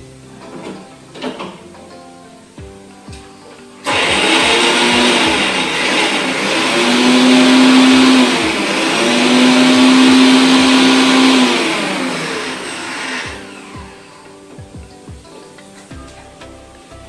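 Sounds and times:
electric mixer grinder running: 3.9 - 14.3.

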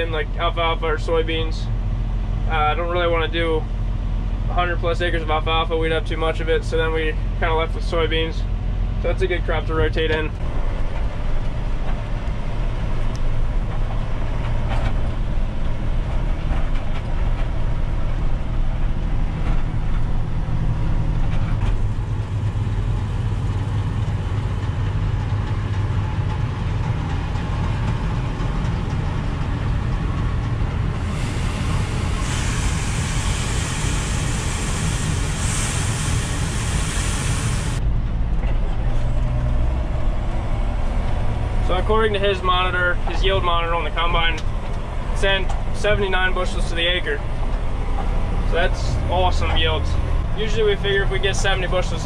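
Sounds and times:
combine harvester working: 0.0 - 52.0
tractor diesel engine running: 0.0 - 52.0
loud hiss: 30.9 - 37.8.

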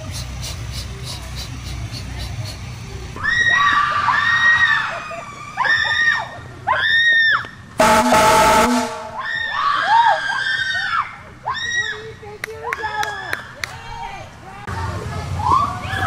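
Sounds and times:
air horn blast: 7.8 - 9.3.

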